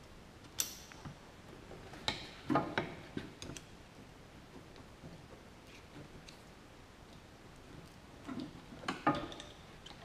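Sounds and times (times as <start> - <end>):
sharp clicks on hose clamps: 0.5 - 1.1.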